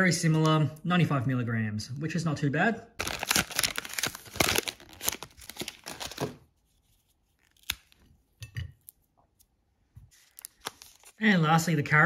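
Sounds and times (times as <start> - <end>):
foil wrapper crinkling: 3.0 - 6.4, 10.2 - 11.2.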